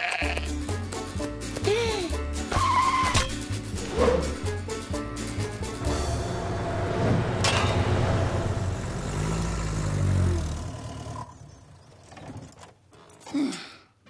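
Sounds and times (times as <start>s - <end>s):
farm vehicle engines passing: 3.7s - 12.6s.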